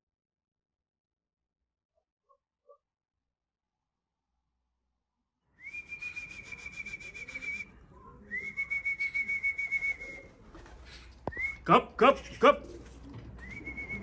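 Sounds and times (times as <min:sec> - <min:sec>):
person whistling long notes: 0:05.6 - 0:07.7, 0:08.4 - 0:10.3, 0:13.4 - 0:14.0.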